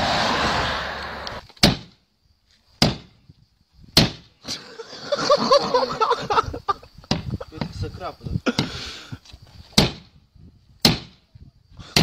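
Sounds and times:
road traffic noise: 0:00.0 - 0:01.4.

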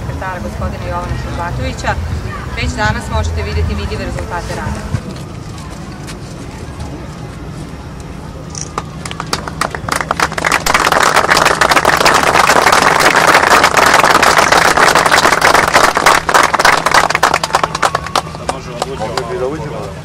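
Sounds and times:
audience applauding: 0:08.8 - 0:19.4.

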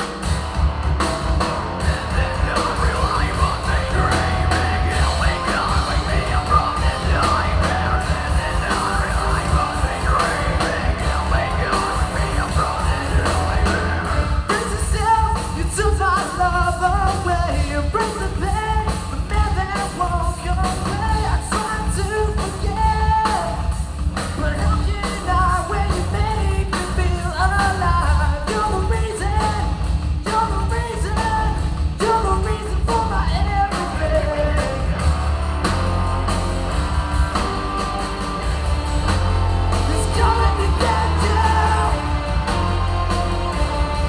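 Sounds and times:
live rock band playing: 0:00.0 - 0:44.0
person singing lead vocal: 0:01.8 - 0:23.7, 0:24.3 - 0:35.2, 0:39.6 - 0:44.0.

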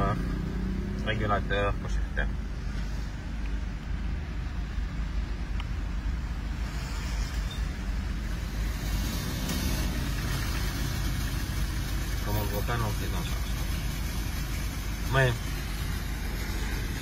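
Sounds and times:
car engine idling: 0:00.0 - 0:17.0
high hiss: 0:06.5 - 0:12.8.

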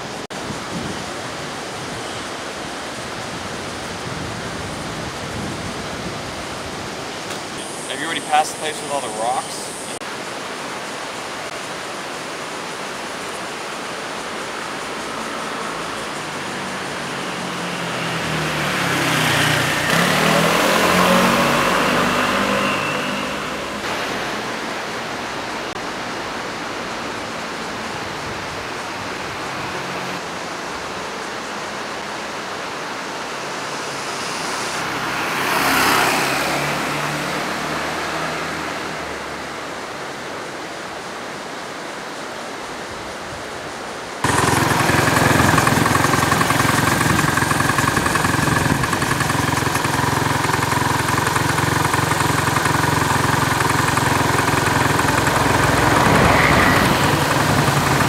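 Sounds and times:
steady hiss: 0:06.2 - 0:17.0
engine running close by: 0:14.1 - 0:40.1, 0:44.2 - 0:58.0
motor scooters passing: 0:15.0 - 0:25.1, 0:33.4 - 0:39.6, 0:44.2 - 0:58.0.

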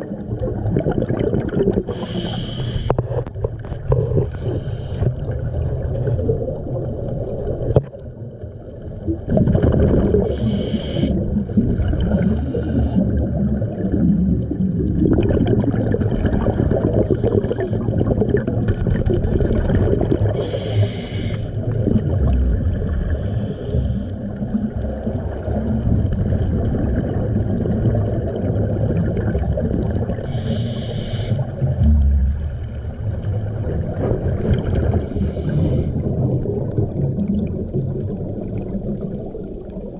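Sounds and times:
exhaled bubbles rumbling: 0:00.0 - 0:39.9
regulator hiss: 0:01.9 - 0:03.0, 0:10.3 - 0:11.2, 0:20.4 - 0:21.6, 0:30.3 - 0:31.5.

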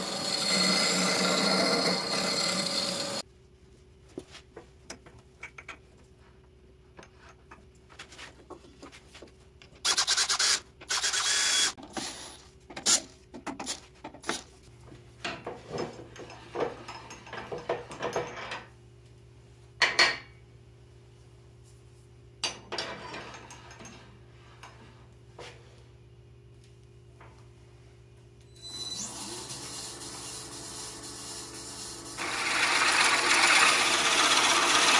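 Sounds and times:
wood scraping on wood: 0:00.0 - 0:03.2.

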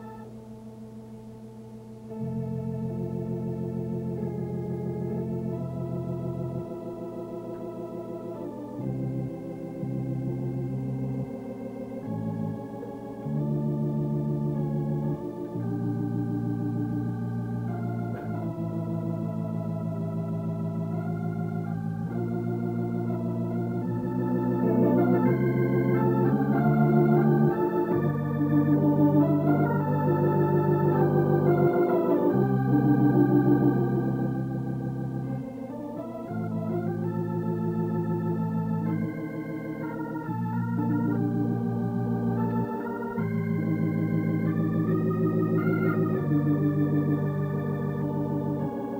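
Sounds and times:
organ music: 0:00.0 - 0:48.9.

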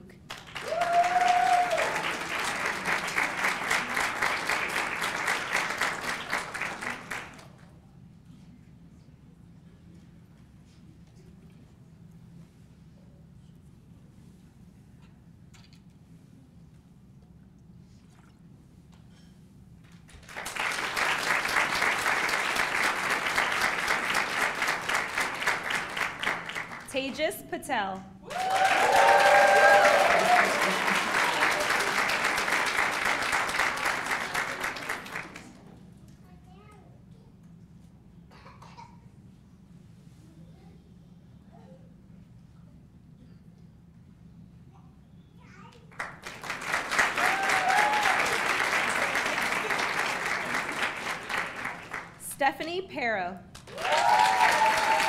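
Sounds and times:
audience applauding: 0:00.3 - 0:07.6, 0:20.1 - 0:27.0, 0:28.2 - 0:35.6, 0:45.9 - 0:52.2, 0:53.5 - 0:55.0
person cheering: 0:00.6 - 0:02.1, 0:28.2 - 0:32.0, 0:47.1 - 0:48.5, 0:53.7 - 0:55.0.

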